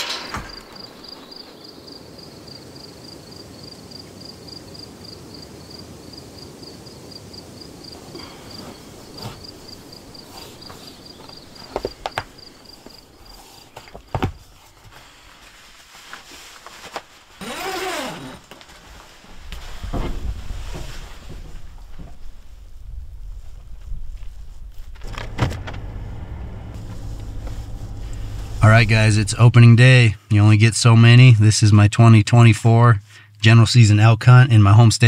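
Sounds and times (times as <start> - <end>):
insect chirping: 0.3 - 14.2.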